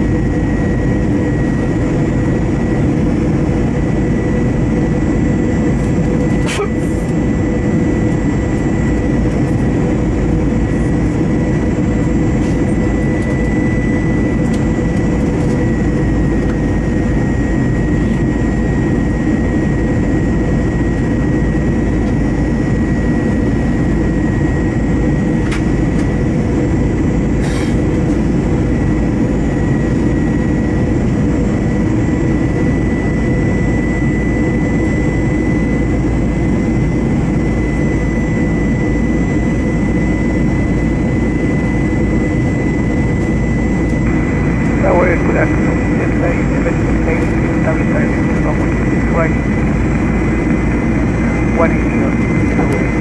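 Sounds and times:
jet engines in aircraft cabin: 0:00.0 - 0:53.0.

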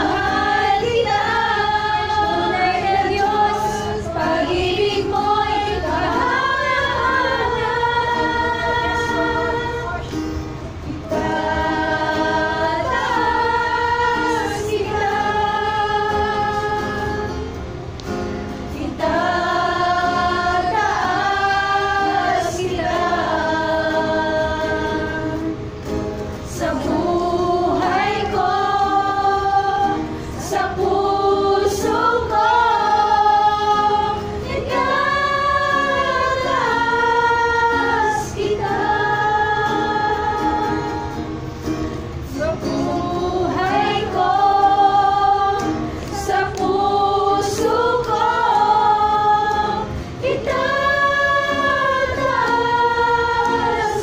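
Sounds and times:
women singing together: 0:00.0 - 0:54.0.

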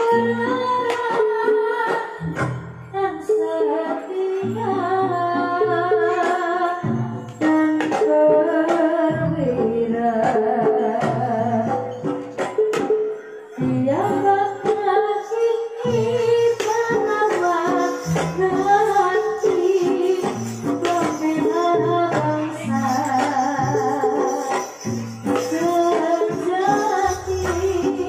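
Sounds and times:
woman singing: 0:00.0 - 0:12.1, 0:13.6 - 0:28.0
gamelan ensemble music: 0:00.0 - 0:28.0
sharp drum strokes: 0:15.8 - 0:28.0.

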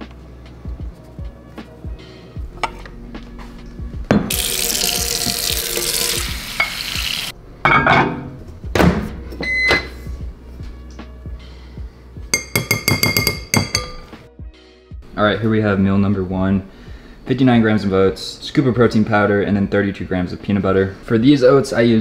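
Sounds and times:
glass bowl clinking: 0:04.3 - 0:06.9, 0:07.6 - 0:08.3, 0:12.3 - 0:14.1.

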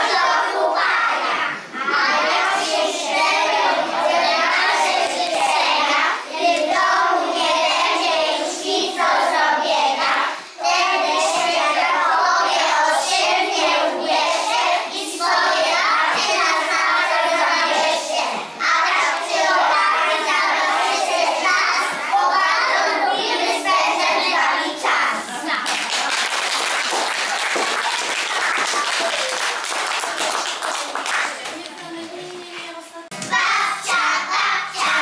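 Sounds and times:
children singing in chorus: 0:00.0 - 0:25.4, 0:33.2 - 0:35.0.

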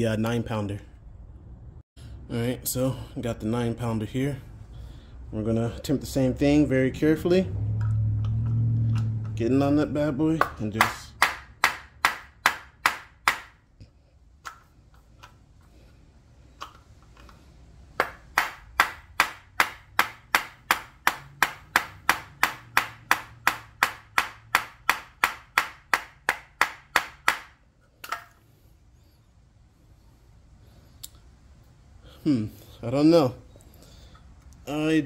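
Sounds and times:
hammer striking metal: 0:10.4 - 0:13.6, 0:18.0 - 0:28.4.

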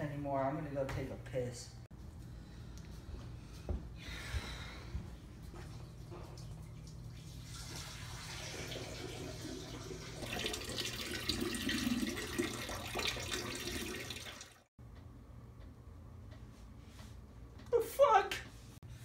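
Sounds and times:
urine splashing into toilet bowl: 0:06.4 - 0:14.6.

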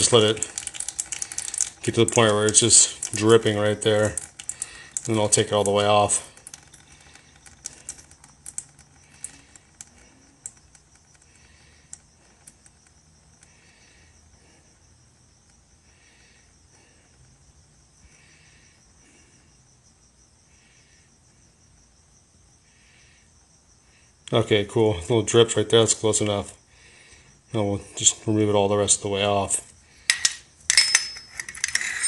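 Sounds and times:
cricket chirping: 0:00.0 - 0:32.0
soft ticks: 0:04.0 - 0:13.5.

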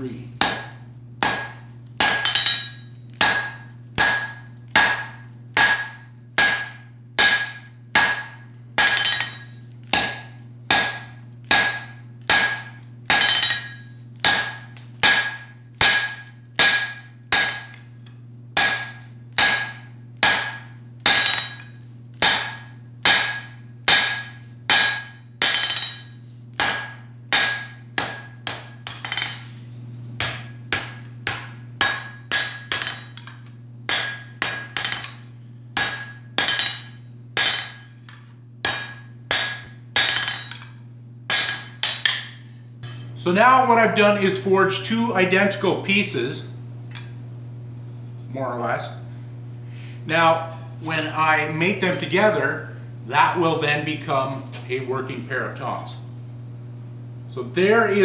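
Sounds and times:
steady low hum: 0:00.0 - 0:58.0
hammer striking steel on anvil: 0:00.4 - 0:17.8, 0:18.6 - 0:29.5, 0:30.2 - 0:43.2.

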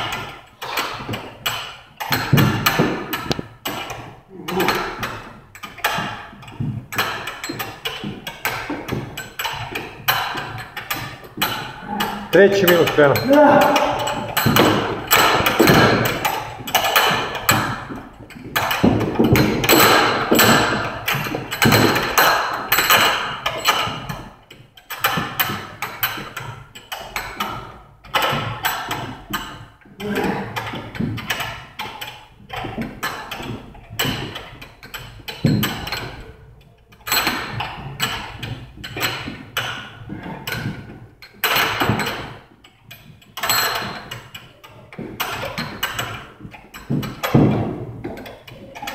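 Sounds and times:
battle ropes slapping floor: 0:00.0 - 0:48.9.

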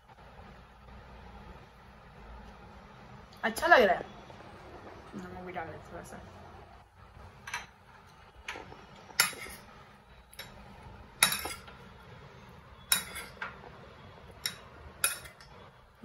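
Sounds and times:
metal spoon clinking in bowl: 0:11.2 - 0:11.8, 0:12.8 - 0:13.6, 0:14.4 - 0:15.5.

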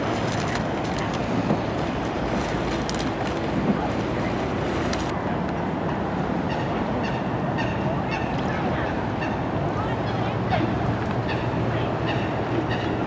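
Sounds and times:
loud outdoor rush: 0:00.0 - 0:13.0
geese honking: 0:11.3 - 0:13.0.

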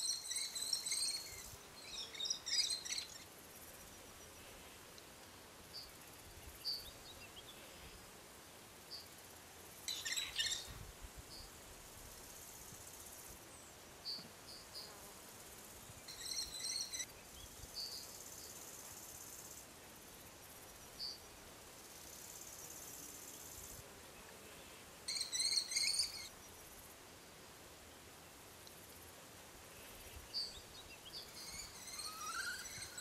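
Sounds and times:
insect hiss: 0:00.0 - 0:33.0
kestrel shrill calls: 0:25.1 - 0:26.3, 0:31.4 - 0:33.0.

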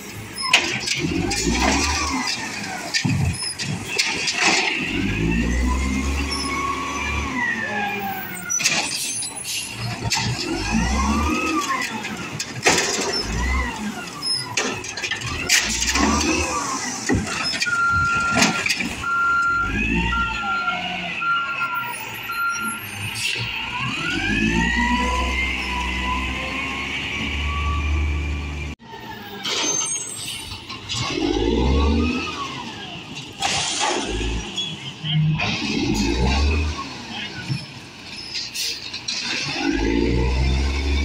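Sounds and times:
truck engine revving: 0:00.0 - 0:41.0
beeps: 0:17.6 - 0:23.1.

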